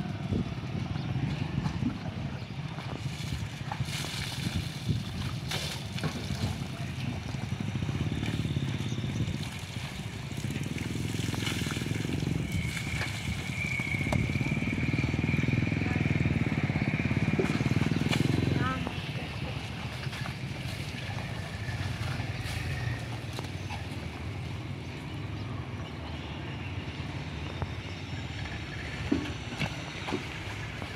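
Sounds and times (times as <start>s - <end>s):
water pouring and splashing: 2.7s - 15.6s, 17.1s - 24.3s.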